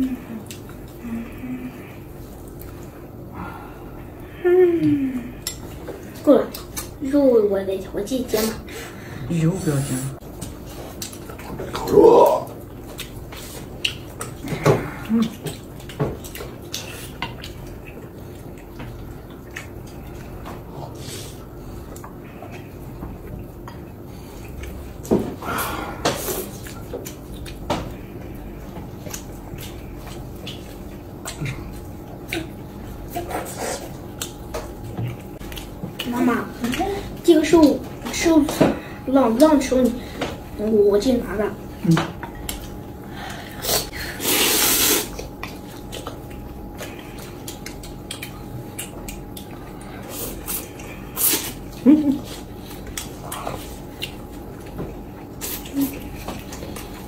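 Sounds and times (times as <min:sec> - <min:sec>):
man slurping noodles: 0:43.6 - 0:45.2
chopsticks clicking against bowls: 0:47.4 - 0:49.6.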